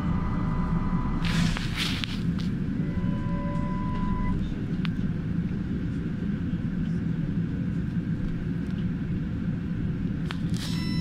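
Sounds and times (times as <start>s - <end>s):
faint high whine: 0.0s - 1.6s, 2.6s - 4.8s
trolleybus running rumble: 0.0s - 11.0s.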